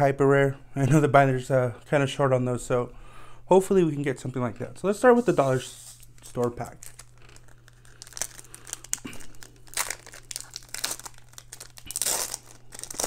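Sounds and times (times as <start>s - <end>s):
foil wrapper crinkling: 5.8s - 13.0s
foil wrapper tearing: 5.9s - 13.0s.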